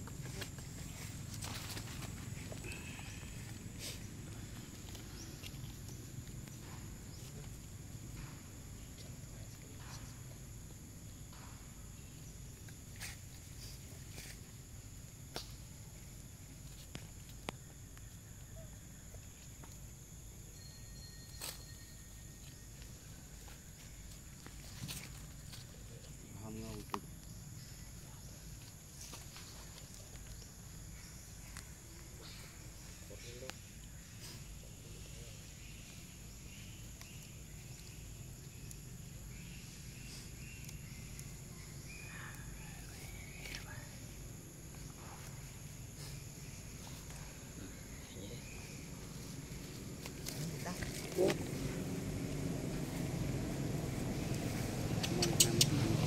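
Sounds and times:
dry leaves and twigs clicking: 0:00.0 - 0:10.1, 0:22.4 - 0:27.9, 0:28.5 - 0:32.9, 0:35.8 - 0:44.0, 0:48.6 - 0:55.8
rustling of leaf litter: 0:00.2 - 0:06.1
high-pitched insect drone: 0:20.2 - 0:23.0.

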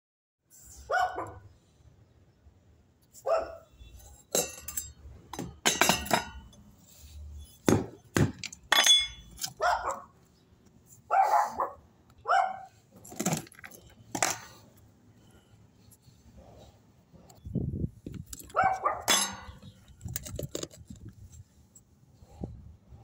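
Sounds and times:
dog barking: 0:00.9 - 0:01.5, 0:03.2 - 0:03.7, 0:09.6 - 0:10.1, 0:11.1 - 0:12.8, 0:18.5 - 0:19.1
metal grate clinking: 0:04.0 - 0:06.6, 0:08.4 - 0:09.6, 0:18.4 - 0:19.8.

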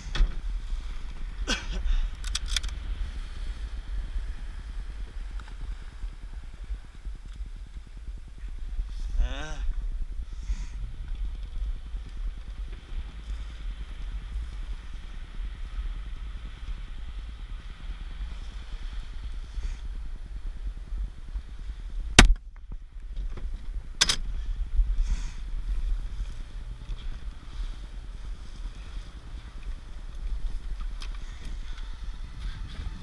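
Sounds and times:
small boat motor rumbling: 0:00.0 - 0:33.0
wind: 0:00.0 - 0:33.0
rifle shot: 0:22.2 - 0:22.4
sharp crack: 0:22.2 - 0:22.6.

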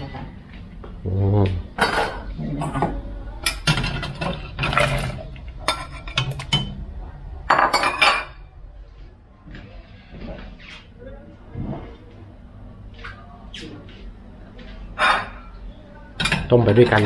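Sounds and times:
utensils clinking against a pot: 0:01.8 - 0:06.8, 0:16.2 - 0:17.0.

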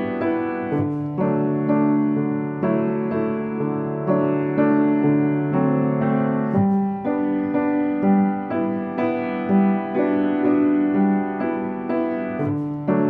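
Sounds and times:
slow gentle piano music: 0:00.0 - 0:13.0.

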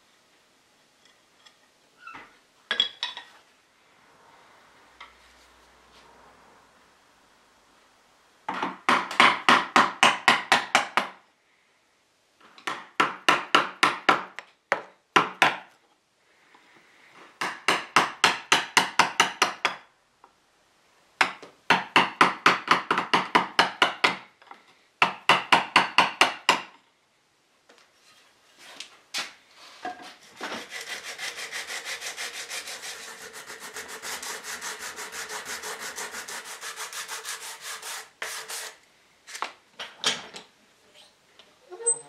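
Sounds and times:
hand tool working wood: 0:29.8 - 0:38.8.

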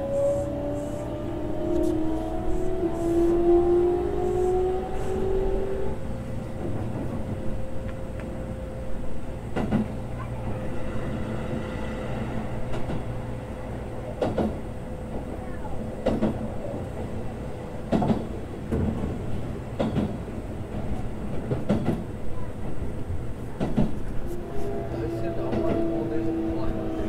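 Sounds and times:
electric train motor whine: 0:00.0 - 0:06.5
train running rumble: 0:00.0 - 0:27.0.

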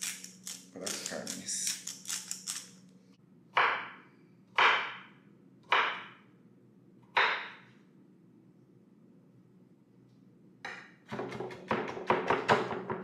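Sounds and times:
knife chopping on wooden board: 0:03.6 - 0:04.0, 0:04.6 - 0:05.1, 0:05.7 - 0:06.2, 0:07.1 - 0:07.6, 0:10.7 - 0:13.0.

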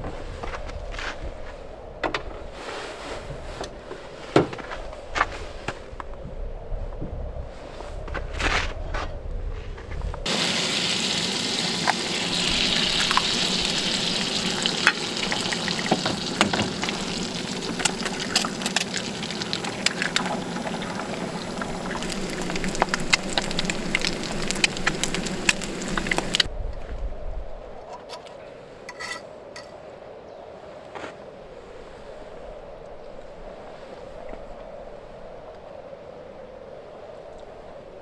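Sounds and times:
eggs sizzling in a frying pan: 0:10.3 - 0:26.5.

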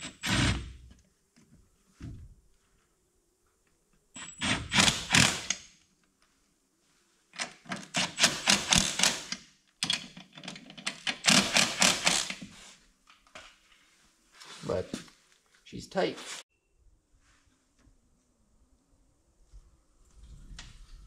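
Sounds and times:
impact wrench rattling: 0:07.9 - 0:12.4.

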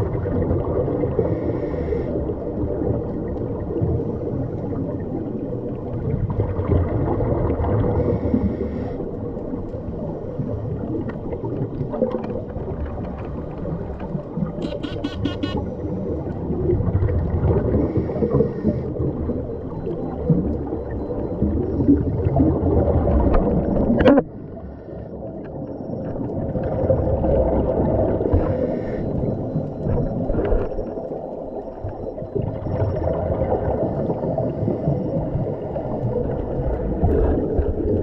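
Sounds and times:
exhaled bubbles: 0:00.0 - 0:38.0
regulator breathing underwater: 0:01.2 - 0:02.4, 0:08.0 - 0:09.1, 0:17.7 - 0:19.1, 0:28.2 - 0:29.5.

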